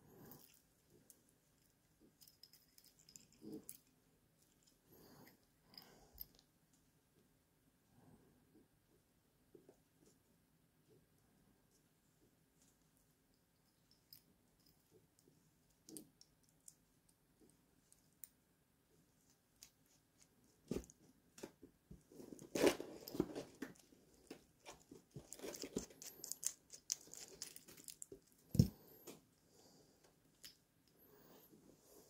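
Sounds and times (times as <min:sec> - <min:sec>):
scraping and clinking: 0:01.6 - 0:04.8, 0:22.4 - 0:29.1.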